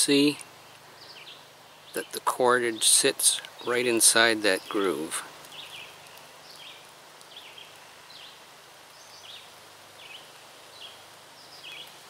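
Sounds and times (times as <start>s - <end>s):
light steady hiss: 0.0s - 12.0s
small bird chirping: 5.5s - 12.0s.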